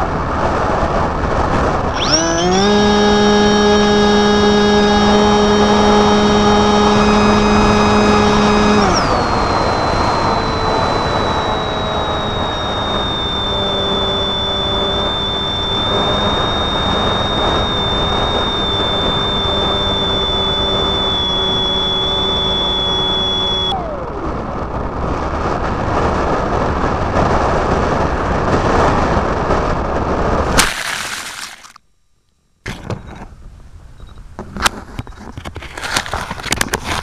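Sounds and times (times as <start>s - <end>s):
electric motor and propeller whining: 0.9s - 27.8s, 30.5s - 31.8s.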